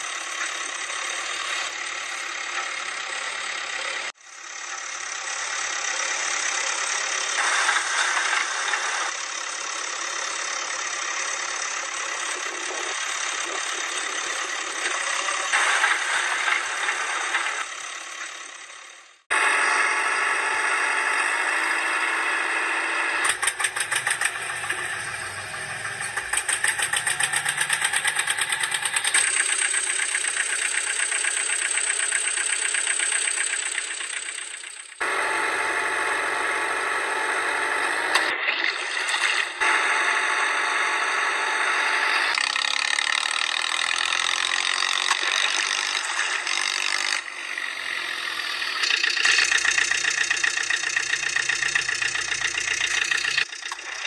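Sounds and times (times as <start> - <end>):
rattling vehicle engine running: 0.0 - 54.0.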